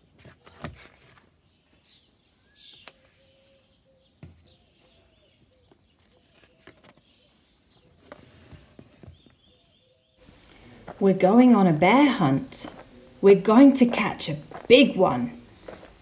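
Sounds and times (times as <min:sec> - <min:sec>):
book pages turning: 0:00.0 - 0:01.5, 0:05.9 - 0:09.1
small birds chirping: 0:00.0 - 0:16.0.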